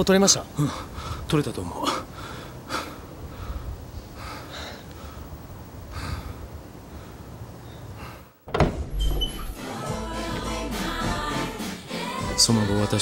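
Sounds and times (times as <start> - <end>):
breaths: 0.6 - 8.4.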